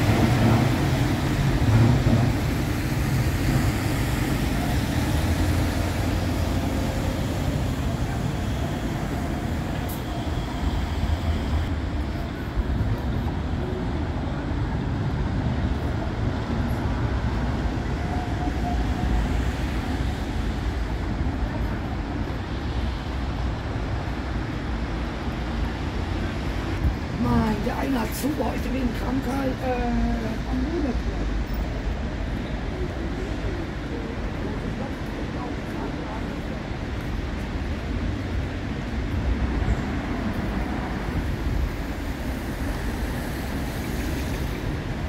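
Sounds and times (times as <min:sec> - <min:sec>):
road traffic noise: 0:00.0 - 0:45.0
tram rumbling: 0:00.0 - 0:45.0.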